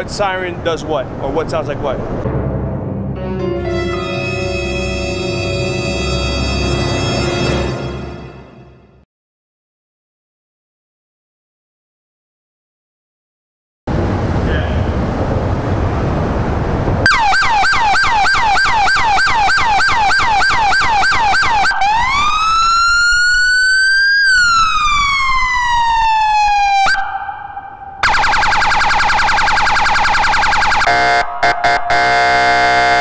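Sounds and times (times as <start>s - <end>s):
police siren: 3.9s - 7.9s, 17.1s - 33.0s.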